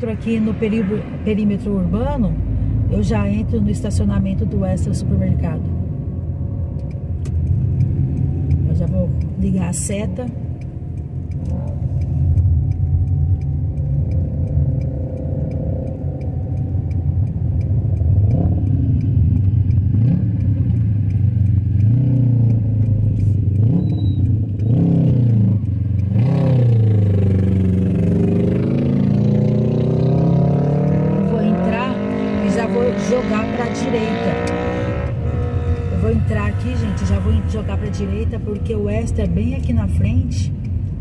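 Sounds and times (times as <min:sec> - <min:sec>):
car engine from inside cabin: 0:00.0 - 0:41.0
turn signal ticking: 0:00.0 - 0:41.0.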